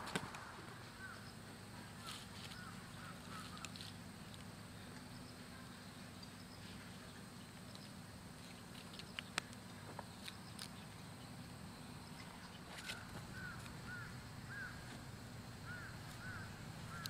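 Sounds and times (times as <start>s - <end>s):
steady low hum: 0.0s - 17.0s
short bird calls: 0.9s - 3.8s, 12.4s - 14.9s, 15.6s - 17.0s.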